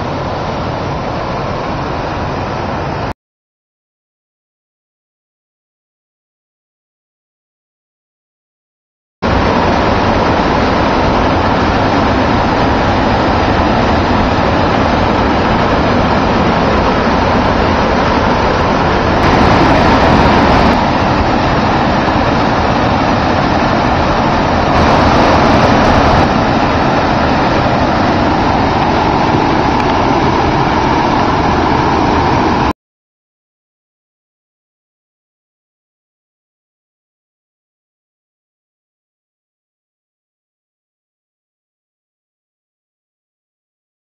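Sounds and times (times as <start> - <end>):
waterfall rushing: 0.0 - 3.1, 9.3 - 32.7.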